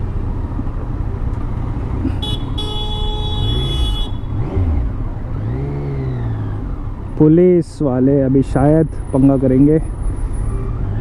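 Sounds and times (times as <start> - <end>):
vehicle horn honking: 2.1 - 4.5.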